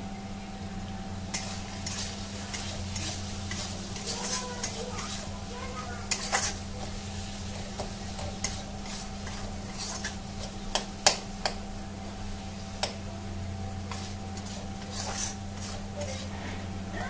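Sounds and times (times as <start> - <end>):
spatula scraping metal pan: 1.3 - 11.2, 13.9 - 16.6
spatula knocking pan side: 7.5 - 11.6.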